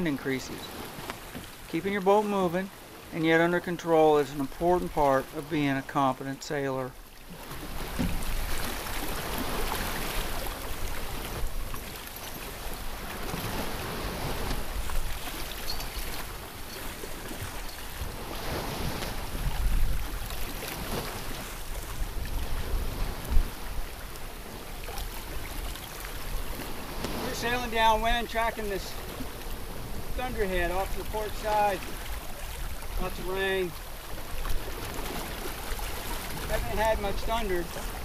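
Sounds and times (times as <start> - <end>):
sea waves rushing: 0.0 - 38.0
wind buffeting microphone: 7.6 - 24.0.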